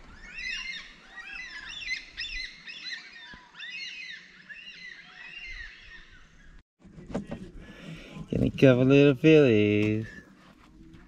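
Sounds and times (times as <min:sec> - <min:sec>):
flock of birds calling: 0:00.0 - 0:06.6.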